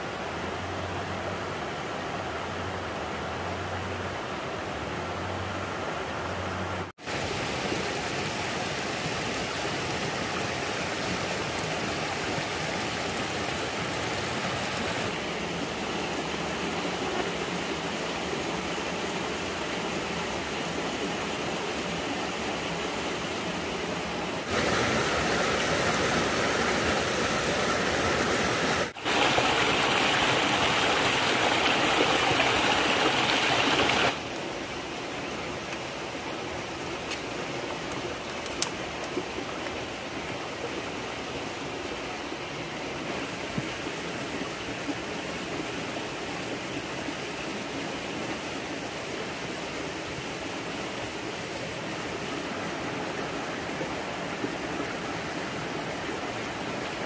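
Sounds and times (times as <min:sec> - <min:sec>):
running water rushing: 0:00.0 - 0:57.0.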